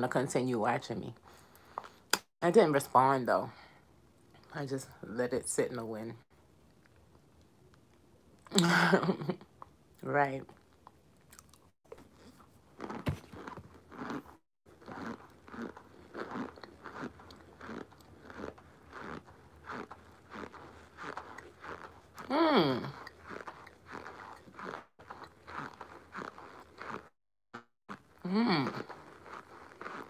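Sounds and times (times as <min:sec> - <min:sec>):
mouth chewing and crunching: 0:01.2 - 0:02.3, 0:09.6 - 0:30.0
vocal hum: 0:22.2 - 0:23.1.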